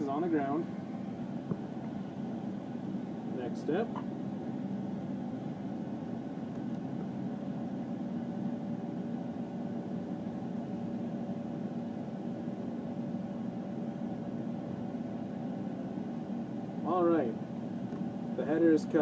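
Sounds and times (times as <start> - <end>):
combine engine hum: 0.0 - 19.0.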